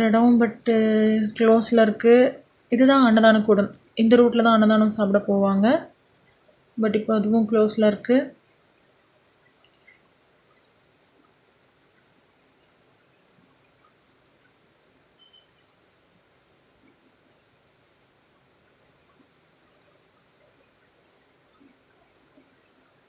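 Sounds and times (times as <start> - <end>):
outdoor night ambience: 0.0 - 23.0
soft ticks: 8.8 - 12.5, 13.2 - 14.6.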